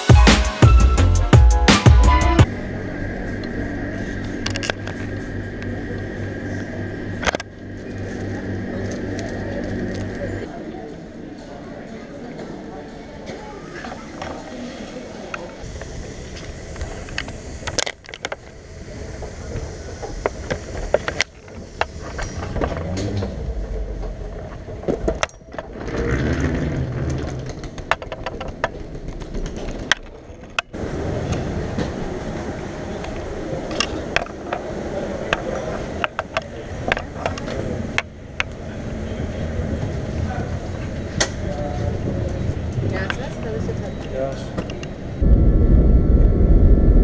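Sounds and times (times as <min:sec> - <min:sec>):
low vehicle rumble: 0:02.1 - 0:11.4, 0:14.1 - 0:44.0, 0:44.7 - 0:47.0
suitcase wheels rolling: 0:13.7 - 0:34.7.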